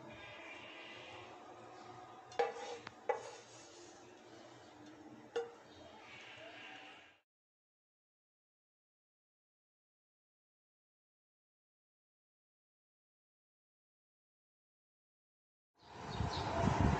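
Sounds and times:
spoon clinking on ceramic bowl: 5.4s - 5.6s.

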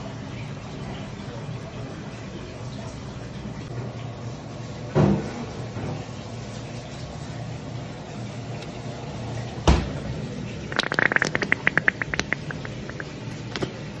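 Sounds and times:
squeeze bottle sputtering: 10.7s - 13.2s.

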